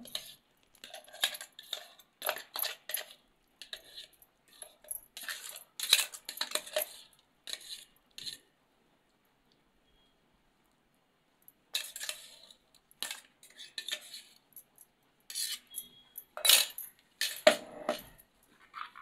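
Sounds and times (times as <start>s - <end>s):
metal spoon scraping a steel pot: 0.0s - 8.4s, 11.8s - 14.4s, 15.3s - 18.2s.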